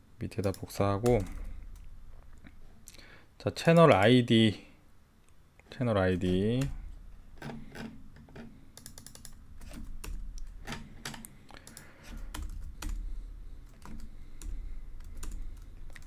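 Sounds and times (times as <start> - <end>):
typing on computer keyboard: 8.7 - 16.0.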